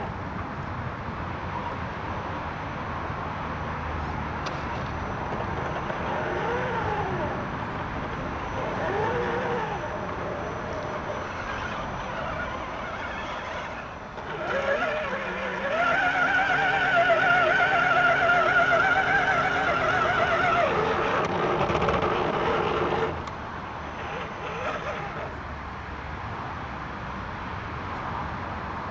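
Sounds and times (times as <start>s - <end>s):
toy truck electric motor whining: 4.8s - 25.4s.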